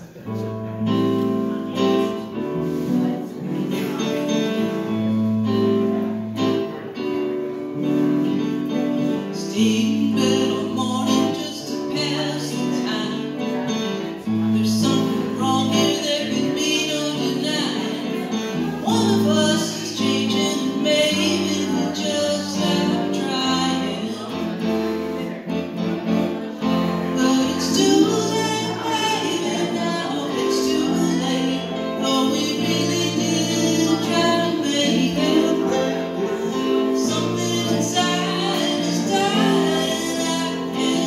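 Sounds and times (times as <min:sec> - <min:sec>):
electric guitar chords: 0:00.0 - 0:41.0
keyboard playing chords: 0:00.0 - 0:41.0
woman singing: 0:09.3 - 0:13.4, 0:14.5 - 0:24.6, 0:27.1 - 0:41.0.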